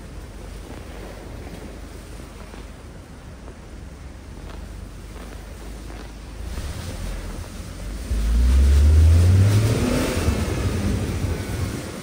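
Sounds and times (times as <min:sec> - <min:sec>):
low engine rumble: 0:00.0 - 0:12.0
car engine revving: 0:03.9 - 0:12.0.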